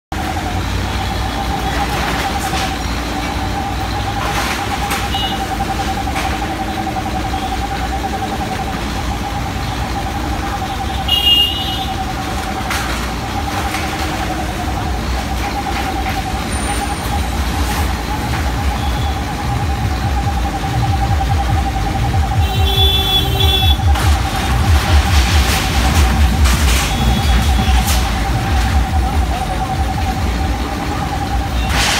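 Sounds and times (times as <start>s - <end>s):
diesel engine whining under load: 0.1s - 31.9s
sheet metal crashing and scraping: 23.8s - 29.1s, 31.6s - 31.9s.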